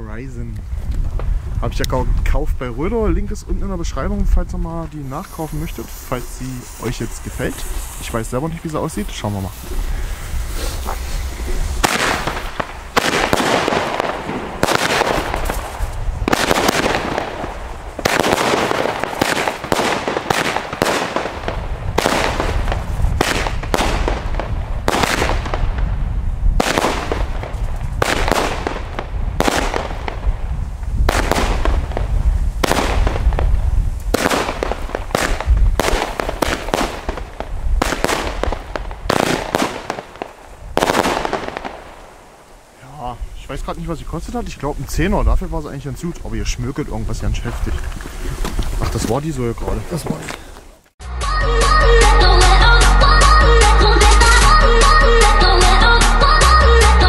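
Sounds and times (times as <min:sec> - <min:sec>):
fireworks bursts and crackle: 0:00.6 - 0:57.0
fireworks shots firing: 0:04.6 - 0:42.7.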